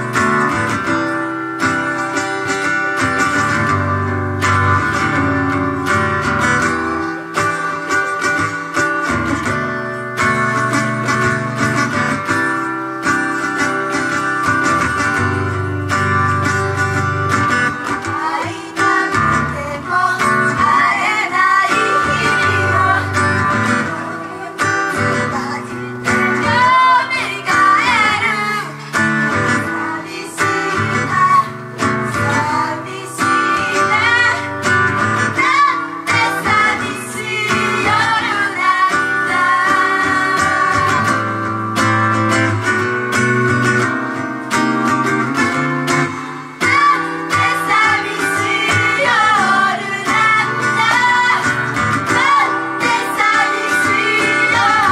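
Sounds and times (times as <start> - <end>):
guitar-led band music: 0.0 - 54.9
woman singing: 17.8 - 41.5, 46.5 - 54.9.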